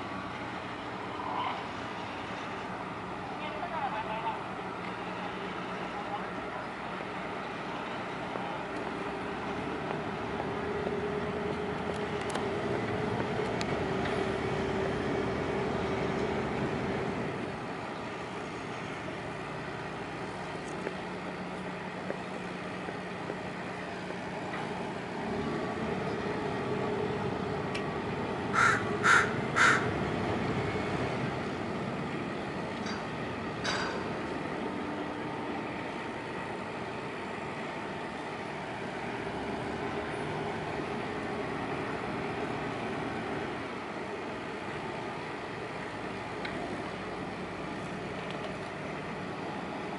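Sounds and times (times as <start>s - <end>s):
bird calling: 28.6s - 29.9s.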